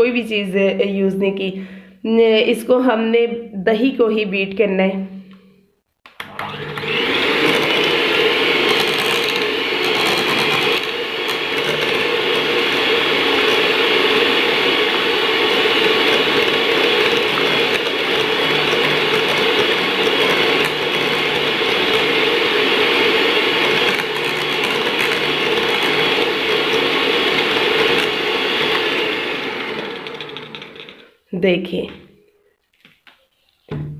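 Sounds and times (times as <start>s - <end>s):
electric hand mixer running: 6.1s - 31.1s.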